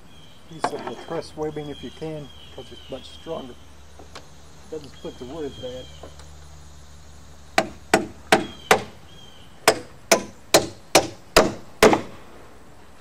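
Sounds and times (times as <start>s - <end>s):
hammer driving nails into wood: 9.7s - 12.2s.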